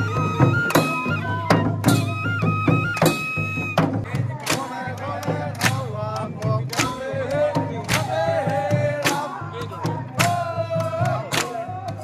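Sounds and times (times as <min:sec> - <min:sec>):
men singing together: 0:04.0 - 0:12.0.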